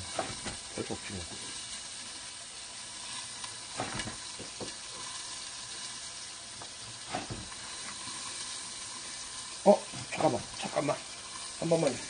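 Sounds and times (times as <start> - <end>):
fish sizzling in a frying pan: 0.0 - 12.0.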